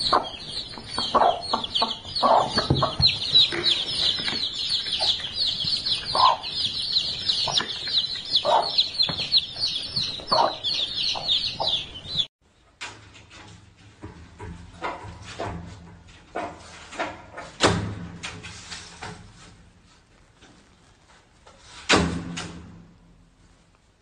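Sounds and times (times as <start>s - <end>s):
baby chicks peeping: 0.0s - 12.3s
hen clucking: 0.0s - 12.3s.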